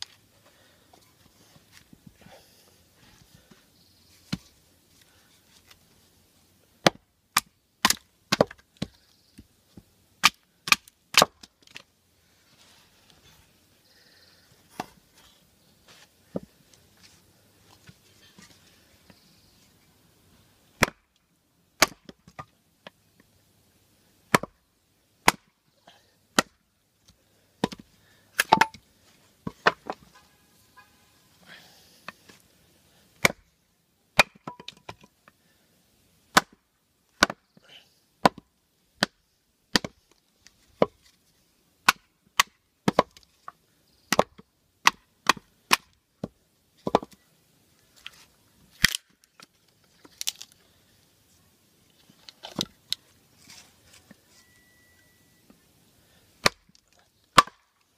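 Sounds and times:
knife chopping wood: 6.8s - 9.0s, 10.2s - 11.5s, 24.3s - 24.6s, 25.2s - 25.5s, 33.2s - 33.4s, 34.2s - 34.7s, 36.3s - 36.6s, 37.2s - 37.4s, 39.0s - 40.0s, 41.8s - 43.2s, 44.1s - 47.2s, 56.4s - 56.7s, 57.4s - 57.6s.

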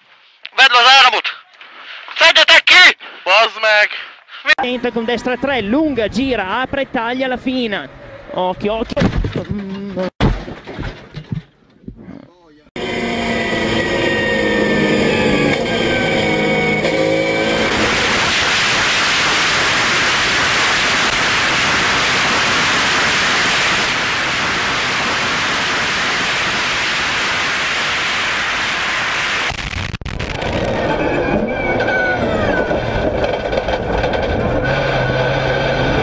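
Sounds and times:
wind and road noise: 4.6s - 9.6s, 12.8s - 36.0s.

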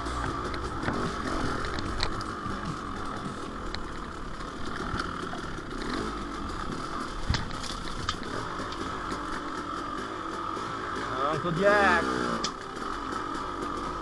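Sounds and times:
dirt bike engine running: 0.0s - 14.0s
bike knocking over rough ground: 0.1s - 4.0s, 4.6s - 8.8s.

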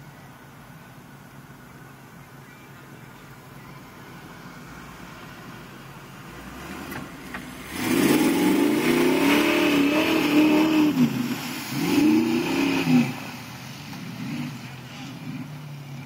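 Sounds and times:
truck engine revving: 4.3s - 16.0s.

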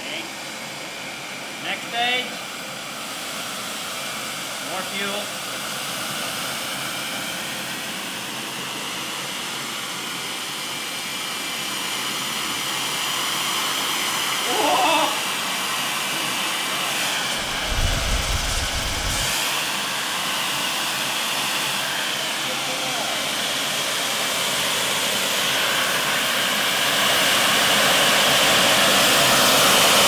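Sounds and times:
small jet engine hissing and whining: 0.0s - 30.0s
low rumble: 17.4s - 19.5s.

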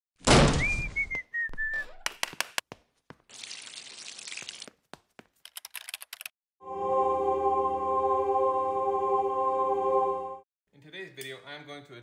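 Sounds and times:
falling whistle: 0.6s - 1.9s.

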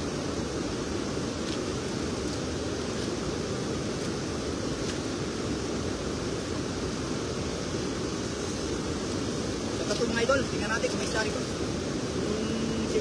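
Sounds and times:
river pouring over a weir: 0.0s - 13.0s.

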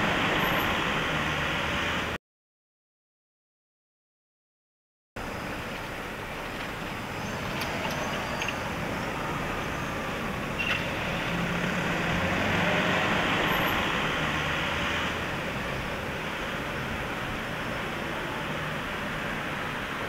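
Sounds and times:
street traffic: 0.0s - 2.2s, 5.2s - 20.0s
vehicle engine passing: 7.0s - 20.0s.

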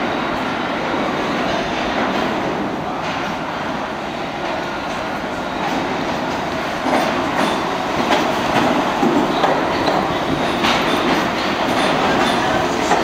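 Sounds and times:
subway train pulling in: 0.0s - 13.0s.

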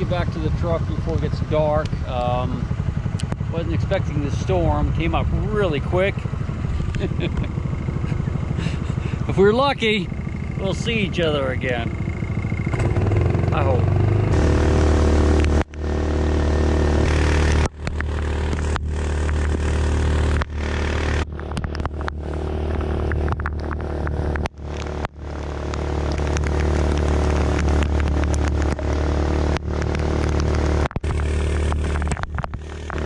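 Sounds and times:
small boat motor running: 0.0s - 33.0s
boat wake rushing: 3.5s - 15.4s.

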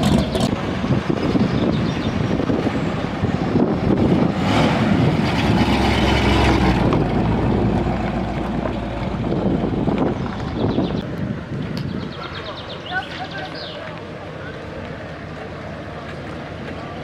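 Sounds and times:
car driving past: 4.1s - 10.9s.

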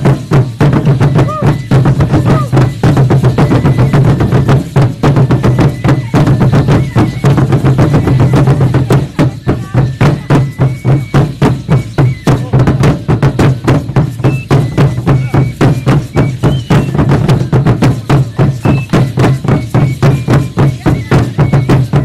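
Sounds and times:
loud fast drumming: 0.0s - 22.0s.

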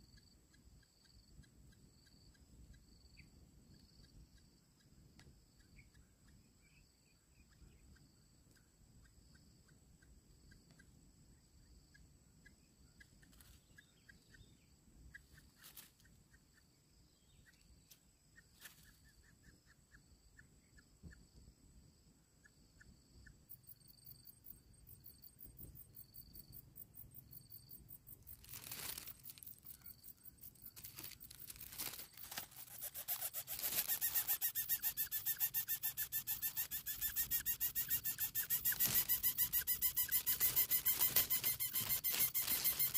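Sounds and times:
faint ticks: 3.8s - 6.0s
rustling in grass: 15.6s - 16.1s, 28.2s - 34.8s, 36.3s - 42.9s
bird nestling rasping call: 31.0s - 42.9s.

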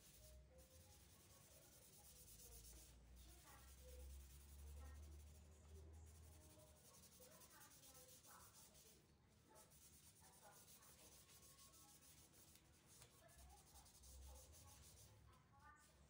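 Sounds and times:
cloth rag rubbing wood: 6.1s - 15.1s.

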